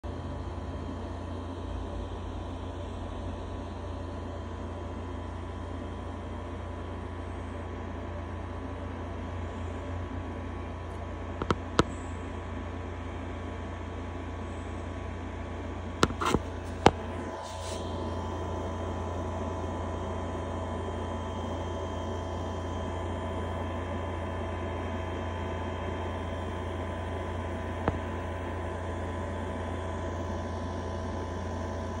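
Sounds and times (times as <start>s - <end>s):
aquarium pumps humming: 0.1s - 32.0s
sharp clicks: 11.4s - 11.9s.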